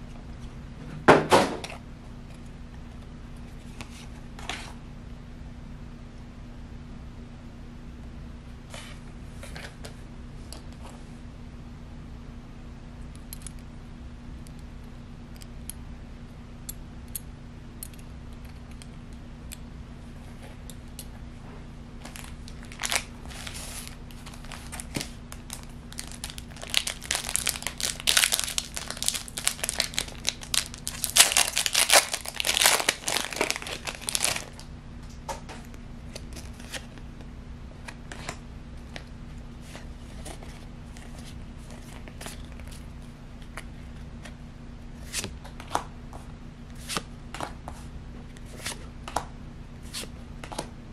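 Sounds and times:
steady low hum: 0:00.0 - 0:50.9
foil wrapper crinkling and tearing: 0:22.0 - 0:34.6.

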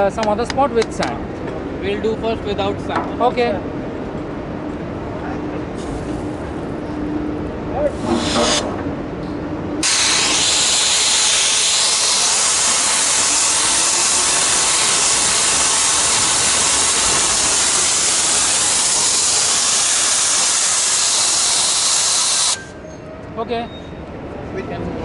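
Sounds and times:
water jet hissing on steel: 0:07.9 - 0:08.6, 0:09.8 - 0:22.7.

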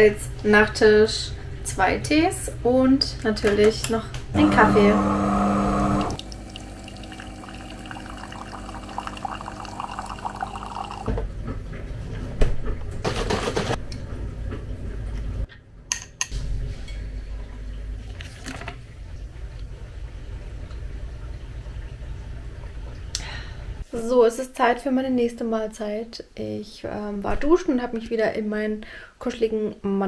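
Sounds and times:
drink being poured: 0:05.5 - 0:11.1.

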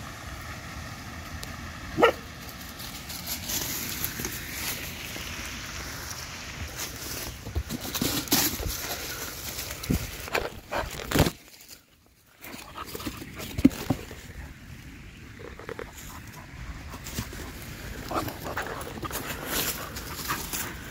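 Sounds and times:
camera handling bumps and rustling: 0:09.8 - 0:11.8
dog snuffling and sniffing: 0:15.9 - 0:20.9.

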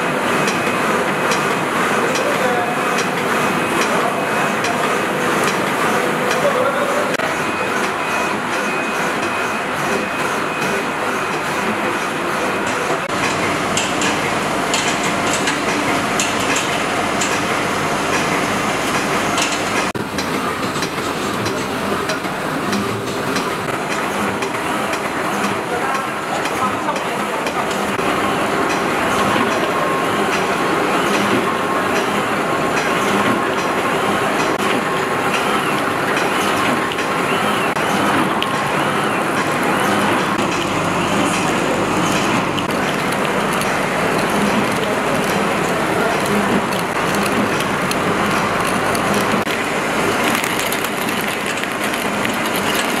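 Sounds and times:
machine clattering: 0:10.0 - 0:28.0, 0:28.6 - 0:53.0
machine mechanical din: 0:32.8 - 0:53.0.

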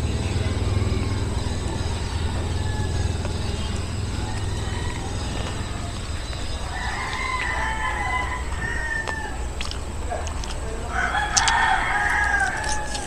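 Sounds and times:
rooster crowing: 0:00.0 - 0:13.0.

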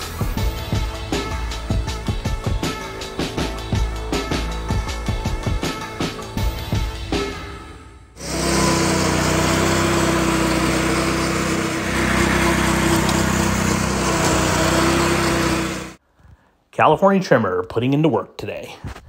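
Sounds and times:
background music: 0:00.0 - 0:16.0
reel mower engine running: 0:08.2 - 0:16.0.

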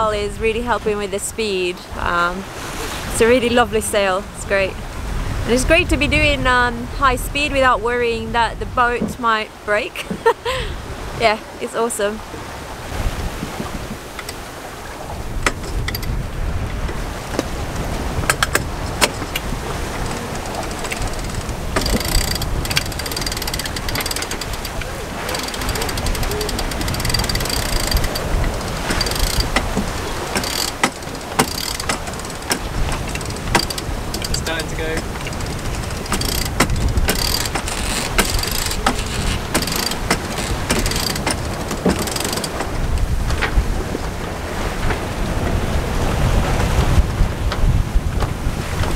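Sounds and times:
wind buffeting microphone: 0:00.0 - 0:48.9
deck gear clicking: 0:14.1 - 0:14.4, 0:15.3 - 0:43.6.

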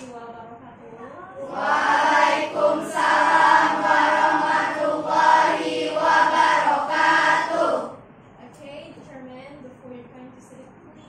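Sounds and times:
students chanting in unison: 0:01.4 - 0:08.0.

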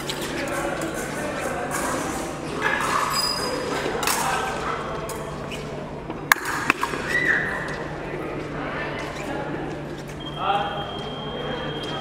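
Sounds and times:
murmur of voices: 0:00.0 - 0:12.0.

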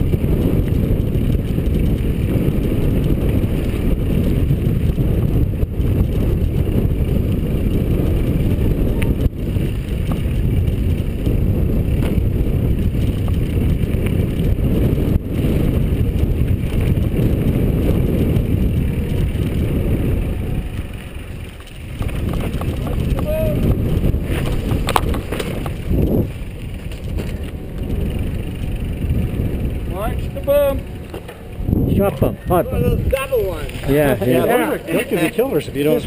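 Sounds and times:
bike tyres rumbling on dirt trail: 0:00.0 - 0:36.0
wind buffeting microphone: 0:00.0 - 0:36.0
bike knocks over bumps: 0:12.0 - 0:12.4, 0:21.6 - 0:23.6, 0:24.2 - 0:26.0.

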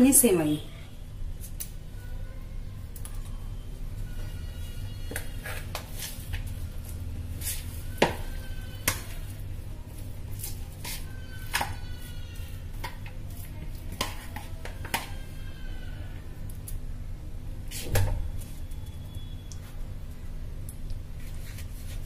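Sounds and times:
faint squeaks: 0:02.0 - 0:05.7, 0:10.8 - 0:12.7.

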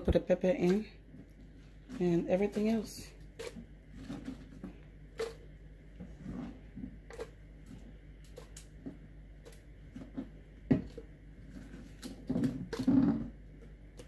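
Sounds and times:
rustling scrape: 0:01.4 - 0:05.3.

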